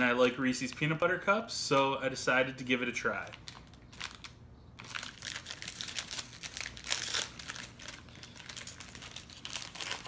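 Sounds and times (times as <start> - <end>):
candy wrapper crinkling: 3.1 - 10.0.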